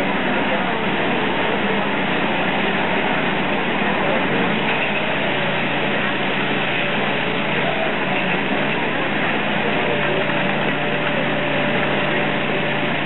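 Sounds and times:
machine engine drone: 0.0s - 13.0s.

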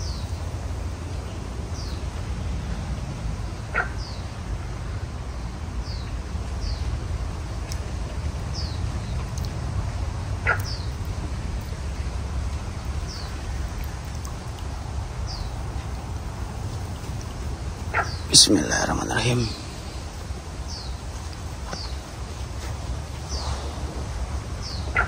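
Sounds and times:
low background rumble: 0.0s - 25.0s
high falling bird call: 17.9s - 21.0s.

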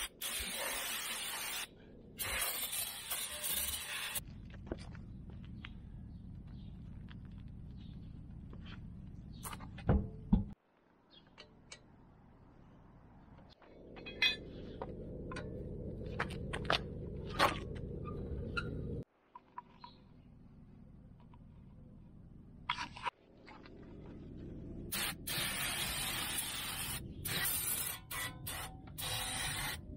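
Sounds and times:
low background rumble: 12.1s - 19.1s.

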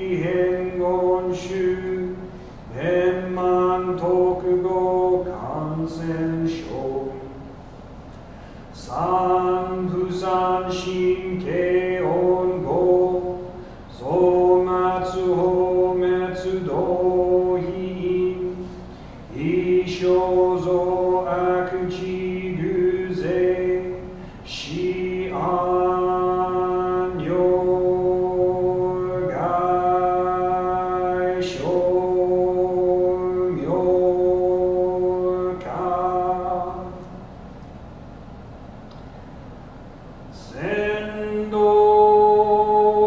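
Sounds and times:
man chanting: 0.0s - 7.4s, 8.7s - 37.2s, 40.3s - 43.0s.

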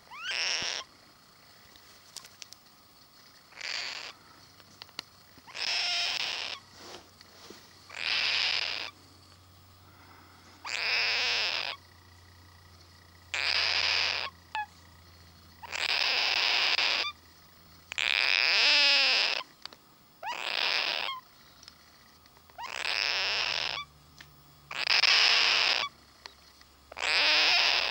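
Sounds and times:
cockatoo harsh rasping calls: 0.0s - 0.9s, 3.5s - 4.4s, 5.4s - 6.8s, 7.9s - 9.0s, 9.9s - 12.0s, 13.2s - 14.8s, 15.6s - 17.3s, 17.9s - 19.6s, 20.2s - 21.9s, 22.6s - 23.9s, 24.7s - 26.0s, 26.9s - 27.9s.

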